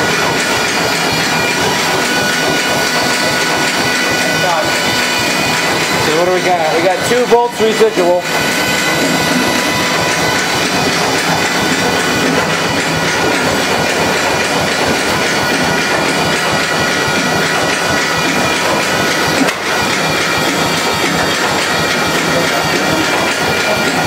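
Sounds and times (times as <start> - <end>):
stationary engine clattering: 0.0 - 24.0
steady high tones: 0.0 - 24.0.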